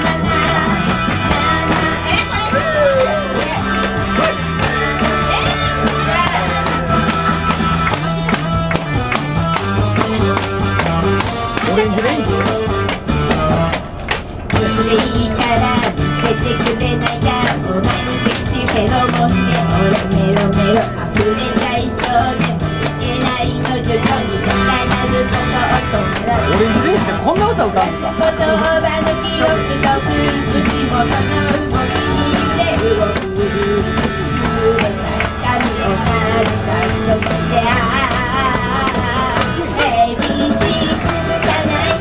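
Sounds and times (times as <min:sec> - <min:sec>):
woman singing into microphone: 0:00.0 - 0:03.6, 0:14.5 - 0:42.0
karaoke music with beat: 0:00.0 - 0:42.0
woman's voice on microphone: 0:25.6 - 0:28.6.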